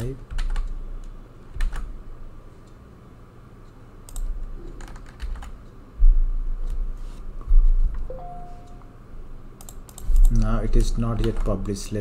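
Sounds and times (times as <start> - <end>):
keyboard keys clicking: 0.0 - 1.9, 4.1 - 5.6, 9.6 - 11.9
heavy low thuds: 6.0 - 6.4.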